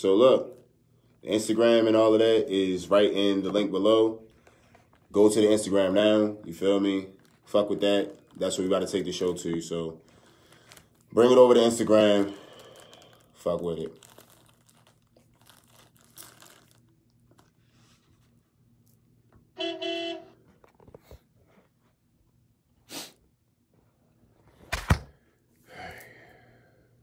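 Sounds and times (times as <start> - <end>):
short buzzy tone: 19.6 - 20.4.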